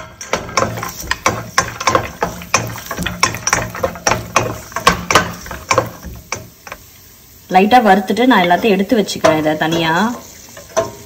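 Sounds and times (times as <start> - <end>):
nuts frying in hot oil: 0.0 - 11.0
wooden spoon stirring in pot: 0.0 - 11.0.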